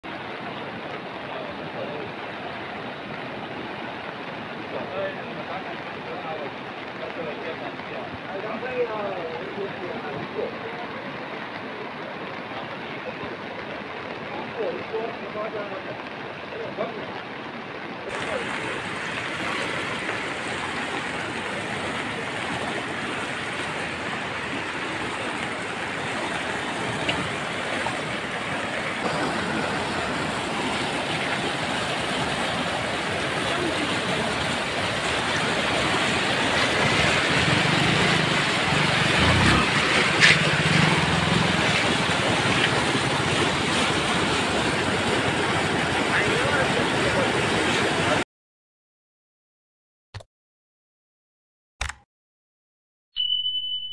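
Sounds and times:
floodwater rushing: 0.0s - 48.2s
sharp click: 51.8s - 52.0s.

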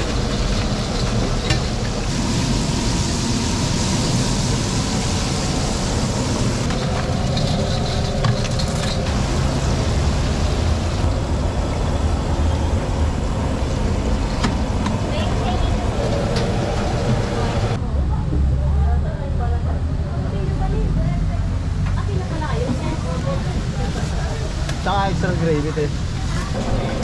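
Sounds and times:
chicken sizzling in hot oil: 0.0s - 10.9s
street traffic rumble: 0.0s - 27.0s.

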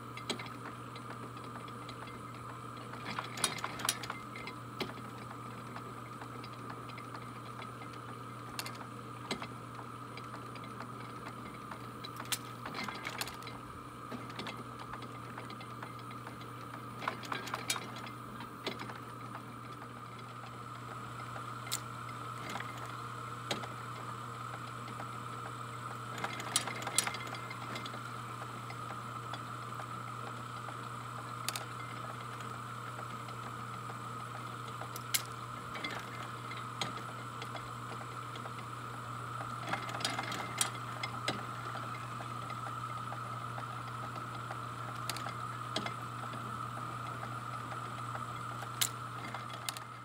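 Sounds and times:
electric motor hum: 0.0s - 50.0s
gears clicking and clanking: 2.8s - 5.4s, 10.2s - 19.0s, 26.1s - 29.4s, 31.4s - 32.4s, 34.7s - 38.6s, 39.4s - 46.0s, 48.6s - 50.0s.

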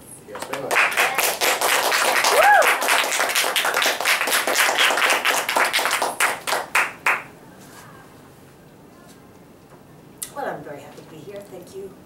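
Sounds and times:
audience applause: 0.4s - 7.3s.

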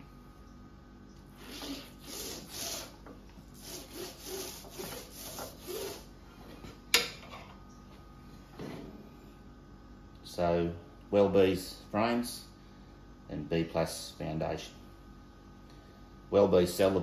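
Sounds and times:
paint roller strokes: 1.4s - 6.1s.

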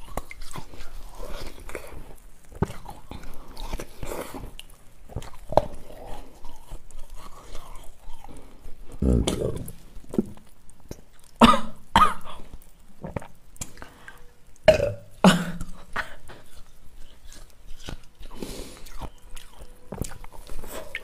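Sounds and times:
woman burping: 14.7s - 16.1s.

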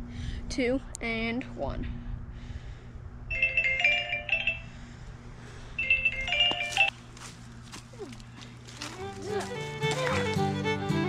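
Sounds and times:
phone alarm chime melody: 3.3s - 4.8s, 5.8s - 6.9s.

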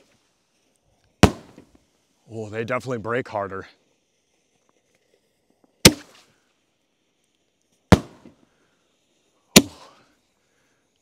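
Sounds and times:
firework shells bursting: 1.1s - 1.8s, 7.8s - 8.4s.

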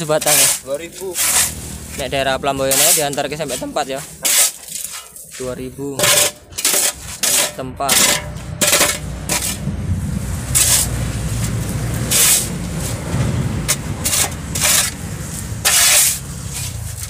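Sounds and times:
shovel scraping concrete: 0.0s - 17.0s
low rumble: 1.4s - 4.2s, 7.6s - 17.0s.

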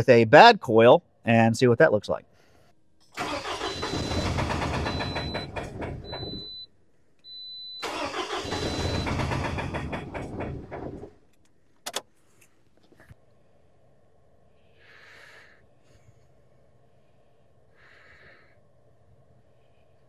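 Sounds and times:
car engine cranking by starter: 3.0s - 6.6s, 7.8s - 12.0s.

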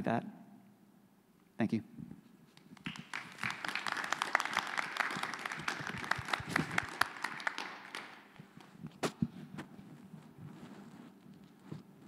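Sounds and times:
audience applause: 2.8s - 8.4s.

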